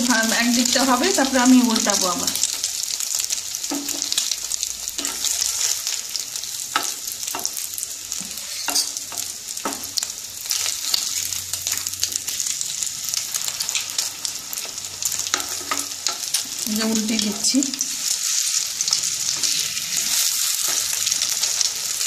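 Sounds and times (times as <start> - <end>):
sandwiches sizzling in a pan: 0.0 - 22.0
utensils scraping a pan: 8.2 - 9.8.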